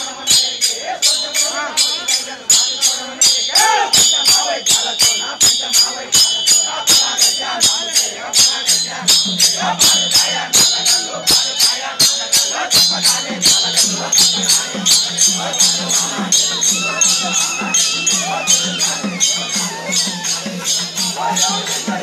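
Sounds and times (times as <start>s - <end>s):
drums beaten in fast rhythm: 0.0s - 22.0s
metal cymbals ringing: 0.0s - 22.0s
low held tone: 16.1s - 21.9s.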